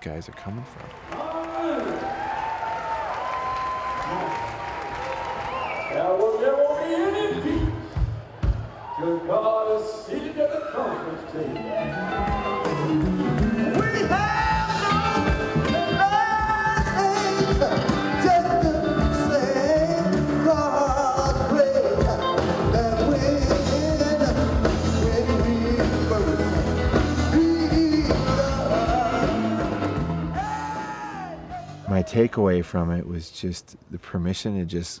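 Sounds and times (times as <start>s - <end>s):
drums: 3.7s - 9.0s, 11.6s - 32.1s
man singing gospel: 13.6s - 31.4s.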